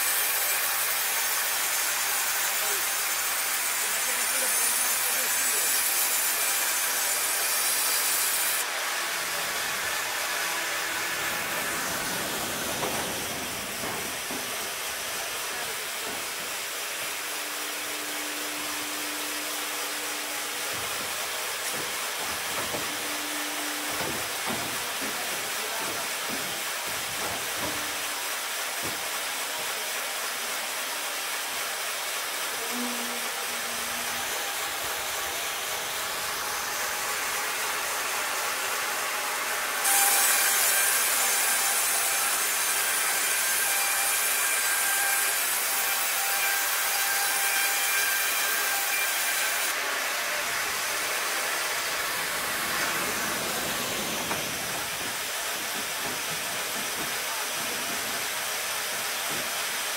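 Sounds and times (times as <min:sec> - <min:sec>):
band saw cutting timber: 0:00.0 - 0:59.9
machinery running hiss: 0:08.1 - 0:29.4, 0:50.0 - 0:59.8.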